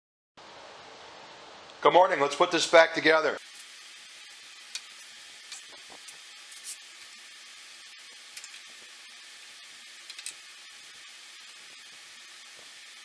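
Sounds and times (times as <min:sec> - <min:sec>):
screwdriver clicks and ticks: 0:10.0 - 0:10.4.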